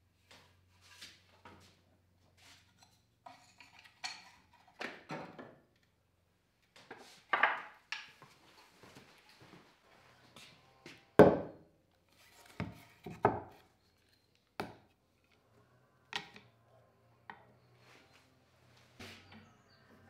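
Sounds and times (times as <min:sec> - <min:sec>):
objects knocking on wooden workbench: 0:07.3 - 0:07.7, 0:11.2 - 0:11.6.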